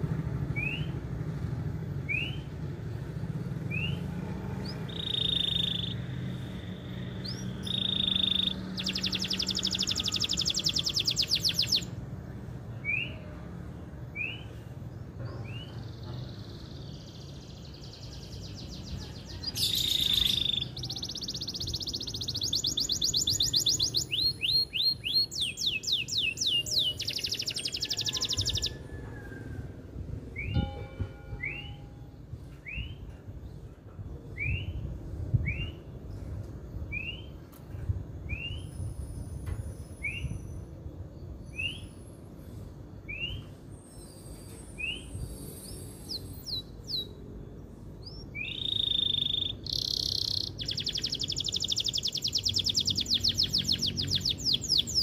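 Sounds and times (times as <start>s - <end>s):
canary singing trills: 3.6s - 12.0s, 15.4s - 29.0s, 38.3s - 55.0s.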